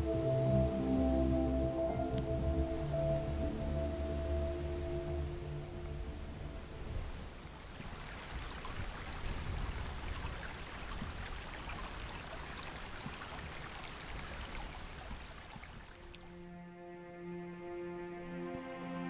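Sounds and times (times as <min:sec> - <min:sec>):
low rumble: 0:00.0 - 0:07.4
stream water rushing: 0:04.6 - 0:16.5.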